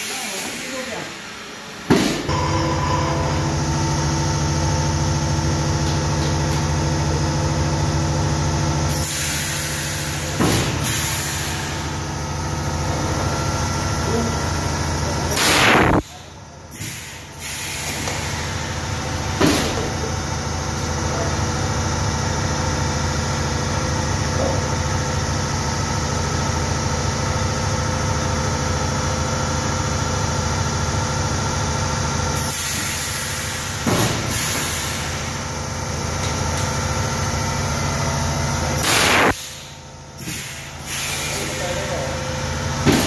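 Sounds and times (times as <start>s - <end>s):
machine motor hum: 0.3s - 32.3s
compressed air hiss bursts: 38.8s - 41.6s.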